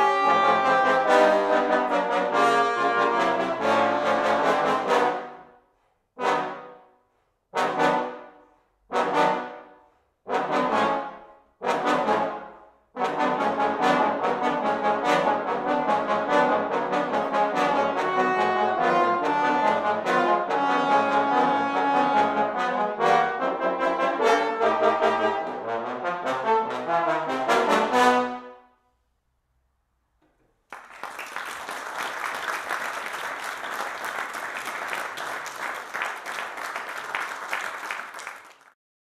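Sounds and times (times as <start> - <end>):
trombone quartet playing: 0.0 - 5.5, 6.2 - 6.8, 7.5 - 28.6
audience applause: 30.7 - 38.8.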